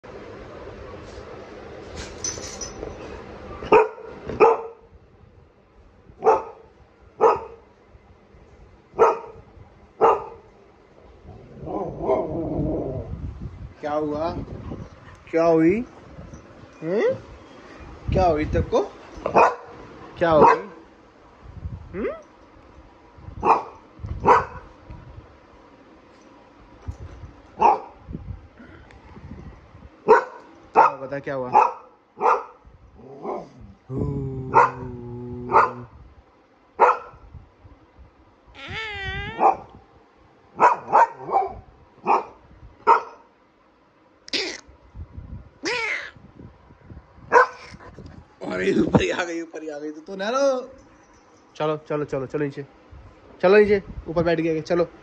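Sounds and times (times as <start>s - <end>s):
dog barking: 3.7s - 4.8s, 6.2s - 7.6s, 9.0s - 9.4s, 10.0s - 10.4s, 19.3s - 19.7s, 20.4s - 20.8s, 23.4s - 24.7s, 27.6s - 28.0s, 30.0s - 32.6s, 34.5s - 34.9s, 35.5s - 35.9s, 36.8s - 37.2s, 39.4s - 39.7s, 40.6s - 43.3s, 47.3s - 47.6s.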